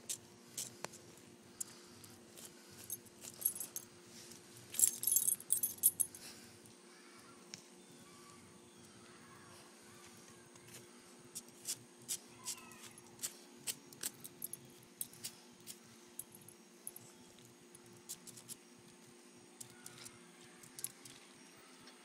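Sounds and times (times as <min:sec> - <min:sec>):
dog collar tags jingling: 0:02.8 - 0:03.9, 0:04.7 - 0:06.2.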